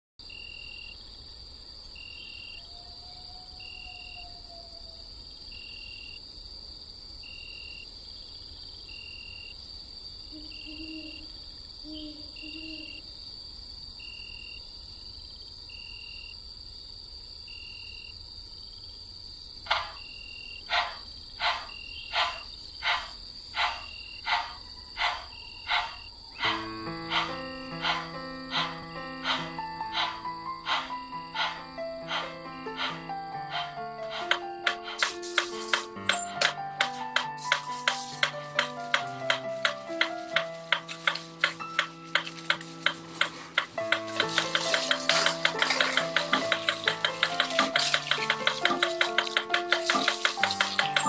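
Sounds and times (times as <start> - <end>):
high insect-like drone: 20.7 - 51.0
mechanical metronome ticking: 43.9 - 51.0.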